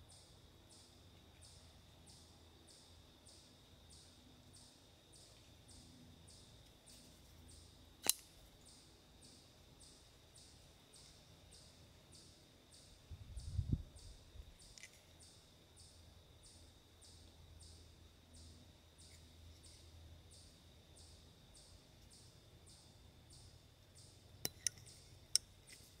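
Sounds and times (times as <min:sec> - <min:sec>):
folding knife metallic clicks: 0:08.0 - 0:08.4, 0:24.4 - 0:25.5
faint high chirping: 0:08.6 - 0:26.0.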